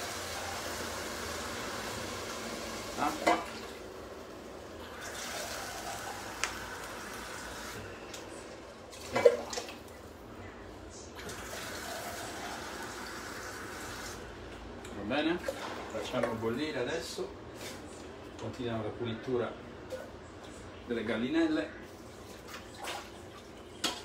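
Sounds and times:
sauce simmering: 0:00.0 - 0:03.1, 0:03.8 - 0:08.8.

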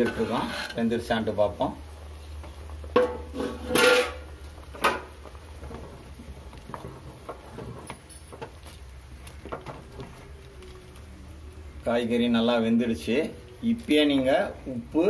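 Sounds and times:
metal clanks on cooking pot: 0:02.9 - 0:05.1
soft bubbling: 0:04.2 - 0:15.0.

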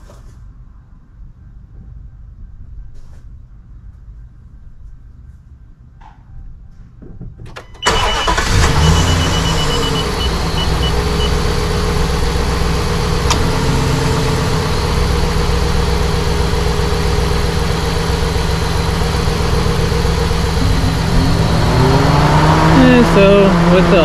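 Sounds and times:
truck engine idling: 0:07.8 - 0:24.0.

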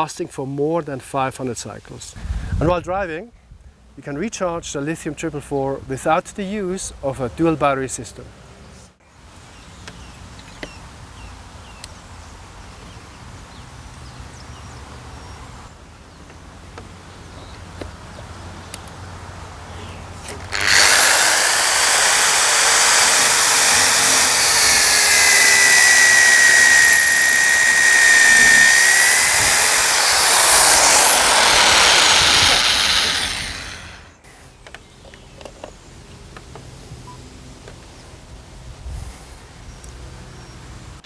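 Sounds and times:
hammer drill boring into wood: 0:20.3 - 0:34.1.

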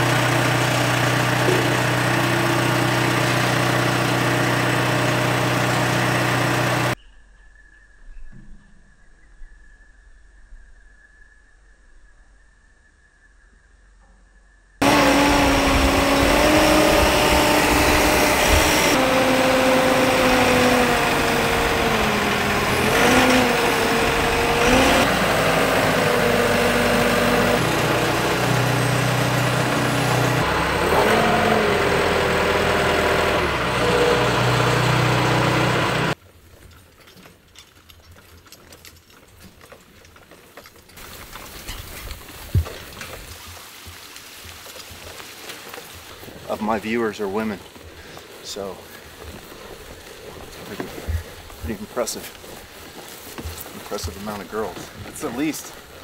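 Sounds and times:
diesel engine running: 0:00.0 - 0:07.0, 0:14.8 - 0:36.2, 0:46.5 - 0:56.0.

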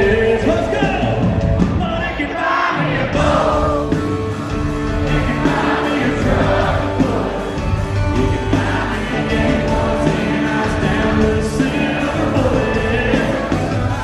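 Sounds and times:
man singing into microphone: 0:00.0 - 0:01.2, 0:08.2 - 0:14.0
country band playing live: 0:00.0 - 0:14.0.

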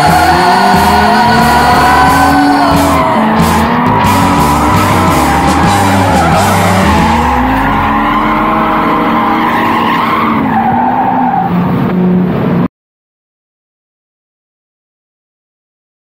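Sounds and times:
music: 0:00.0 - 0:09.6
tyres squealing: 0:00.0 - 0:11.6
car engines revving: 0:00.0 - 0:12.7.

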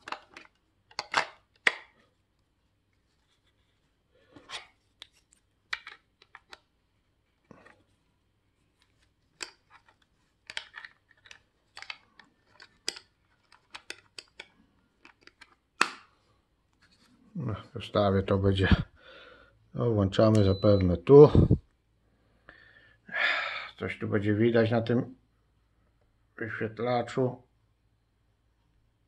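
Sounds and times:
small plastic clicks and scrapes: 0:08.8 - 0:15.6.

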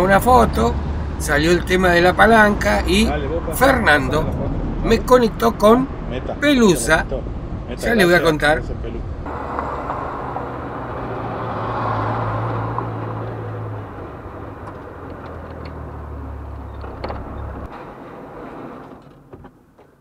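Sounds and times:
road noise: 0:00.0 - 0:20.0
pickup engine running: 0:08.9 - 0:19.8.

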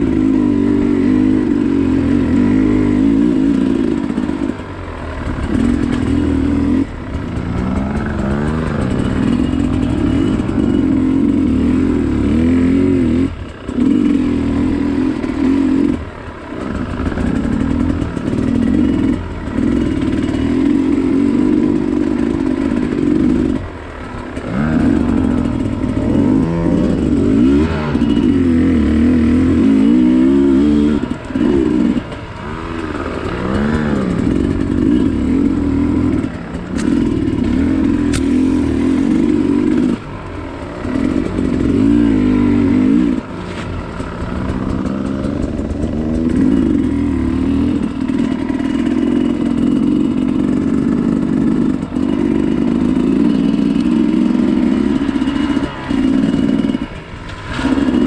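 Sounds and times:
dirt bike engine revving: 0:00.0 - 0:58.0
sharp ticks: 0:31.0 - 0:38.9.

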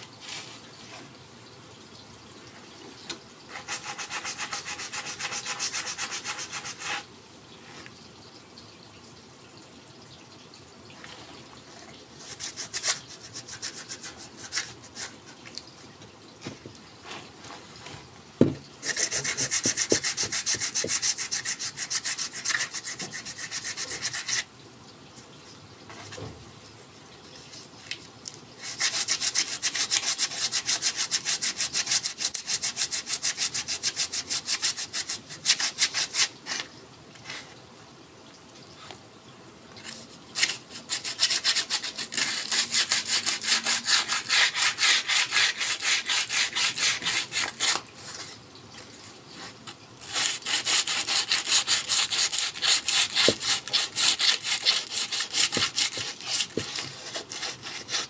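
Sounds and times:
sandpaper rubbing on wood: 0:03.5 - 0:07.1, 0:18.8 - 0:24.4, 0:40.4 - 0:47.8, 0:50.1 - 0:58.0
knock: 0:18.4 - 0:18.6.

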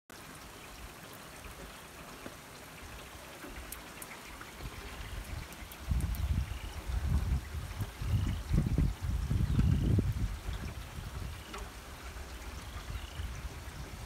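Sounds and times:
steady rain hissing: 0:00.1 - 0:14.0
sharp rain drop ticks: 0:00.2 - 0:14.0
low buffeting rumble: 0:04.6 - 0:14.0.

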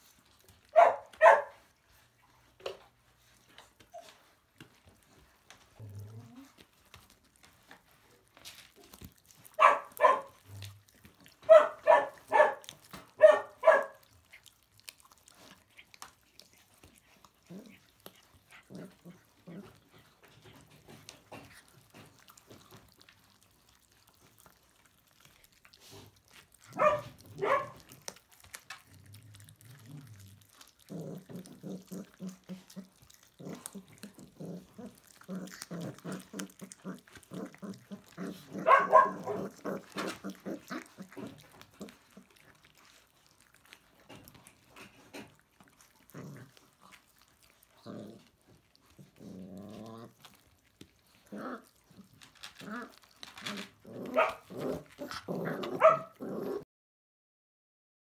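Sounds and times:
puppy growling: 0:00.0 - 0:56.7
puppies yapping: 0:00.7 - 0:01.6, 0:09.4 - 0:10.6, 0:11.4 - 0:14.2, 0:26.6 - 0:28.2, 0:31.0 - 0:42.4, 0:53.6 - 0:56.2.

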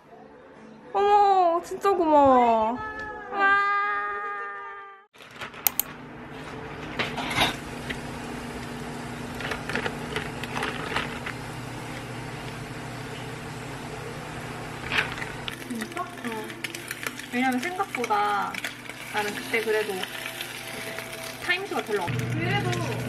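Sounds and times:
sharp clicks and clinks: 0:05.7 - 0:05.9
electric motor hum: 0:07.6 - 0:23.0.

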